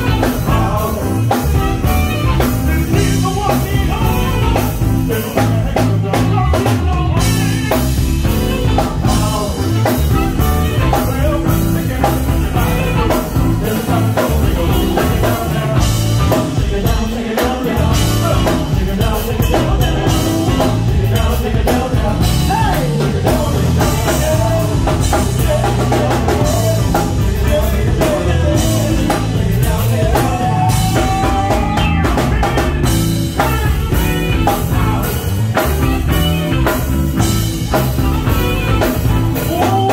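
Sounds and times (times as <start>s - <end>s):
live band playing dance music: 0.0s - 39.9s.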